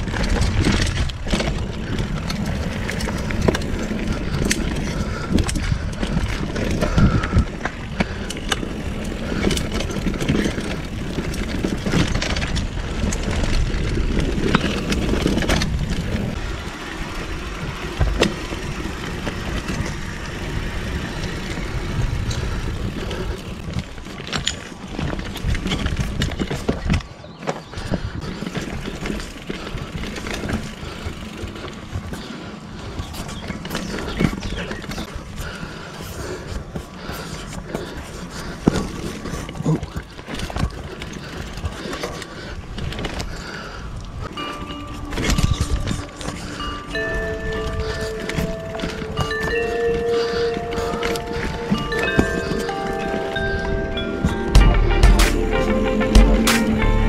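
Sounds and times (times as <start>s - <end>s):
bike clicks rattles and knocks: 0.0s - 54.7s
tyres rumbling on dirt and gravel: 0.0s - 57.0s.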